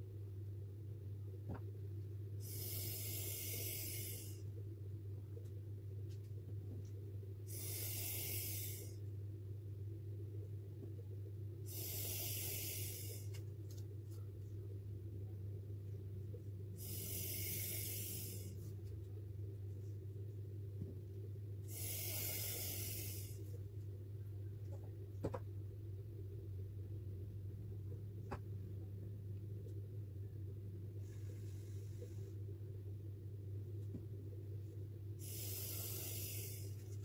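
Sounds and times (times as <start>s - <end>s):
steady low hum: 0.0s - 37.0s
hissing puffs through a straw: 2.4s - 4.4s, 7.5s - 9.0s, 11.7s - 13.3s, 16.8s - 18.7s, 21.7s - 23.6s, 35.2s - 37.0s.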